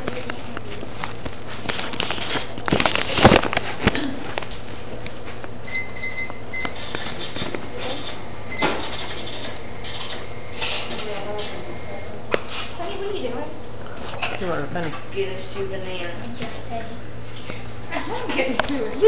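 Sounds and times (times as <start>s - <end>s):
cash register keypad beeps: 5.7s - 7.1s, 8.5s - 10.2s.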